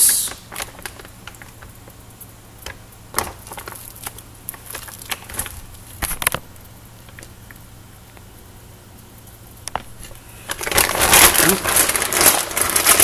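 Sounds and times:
plastic bag crinkling: 0:00.3 - 0:07.6, 0:09.7 - 0:13.0.

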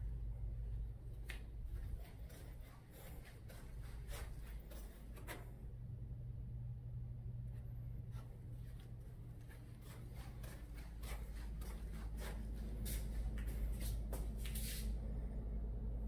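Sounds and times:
low steady hum: 0:00.0 - 0:16.0
soft footsteps: 0:00.6 - 0:05.6, 0:07.4 - 0:15.0
footsteps on tile floor: 0:01.2 - 0:05.5, 0:08.1 - 0:15.0.

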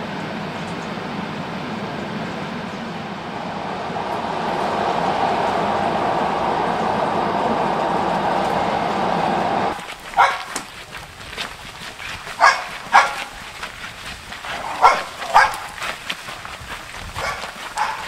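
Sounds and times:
train rumbling: 0:00.0 - 0:18.0
dog barking: 0:10.1 - 0:10.6, 0:12.4 - 0:13.3, 0:14.6 - 0:15.8, 0:17.2 - 0:18.0.

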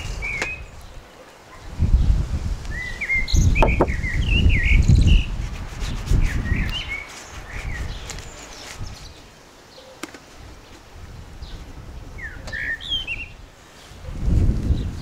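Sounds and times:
small birds chirping: 0:00.0 - 0:15.0
low rumbling in gusts: 0:01.6 - 0:08.2, 0:10.4 - 0:15.0.

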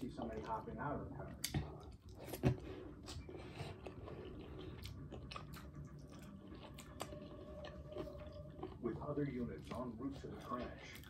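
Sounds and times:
close-up chewing: 0:00.0 - 0:11.0.

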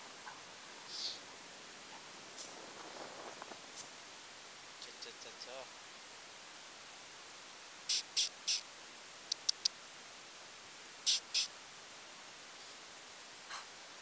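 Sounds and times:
sharp little clicks: 0:07.9 - 0:08.6, 0:09.3 - 0:09.8, 0:11.1 - 0:11.5.

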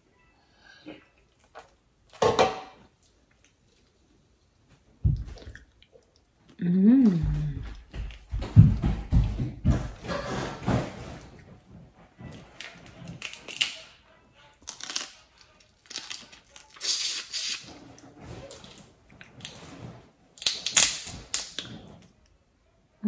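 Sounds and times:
wet sucking and chewing: 0:15.7 - 0:22.1.

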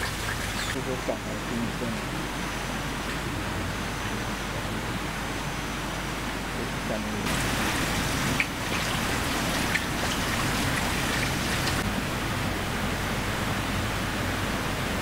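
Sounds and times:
rain hissing: 0:07.2 - 0:13.1.

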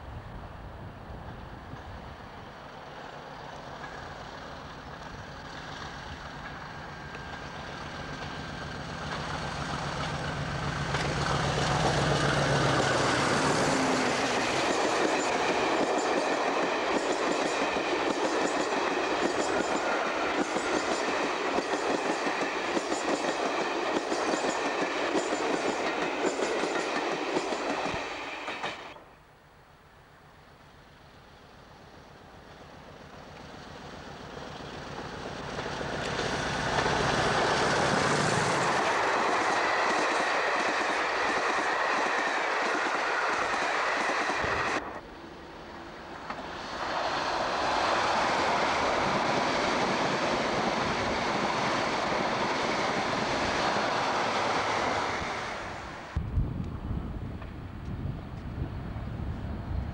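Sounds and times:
diesel locomotive passing: 0:00.0 - 0:29.2, 0:30.1 - 0:59.9
train wheels clacking on rails: 0:03.4 - 0:29.0, 0:34.6 - 0:45.0.

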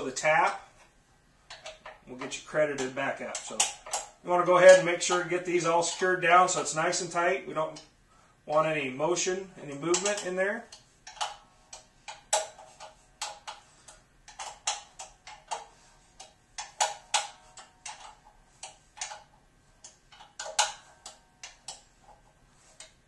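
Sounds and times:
wrench clicking: 0:01.5 - 0:06.7, 0:09.8 - 0:23.0.

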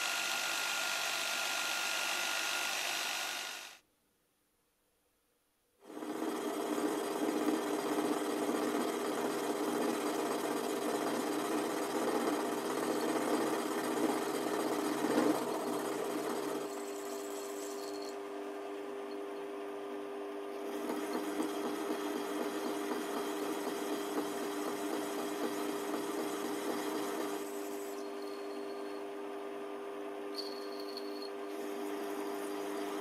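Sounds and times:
lathe tool cutting workpiece: 0:00.0 - 0:03.8.

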